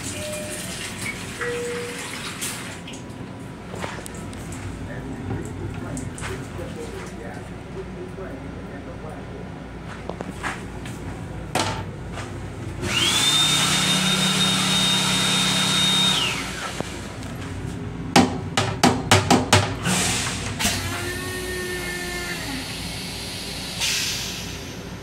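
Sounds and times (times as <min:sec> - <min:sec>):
toilet flush motor whining: 0:00.0 - 0:02.8, 0:12.8 - 0:17.2, 0:19.8 - 0:24.5.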